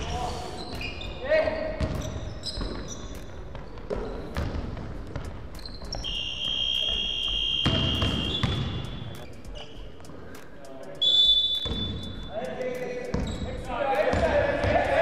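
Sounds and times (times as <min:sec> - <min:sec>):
basketball bouncing on gym floor: 0:00.7 - 0:09.7, 0:11.6 - 0:12.3, 0:13.1 - 0:15.0.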